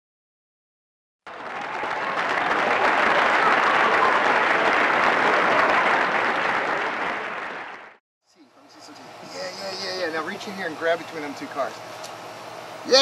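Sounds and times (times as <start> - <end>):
crowd applauding: 1.3 - 8.0.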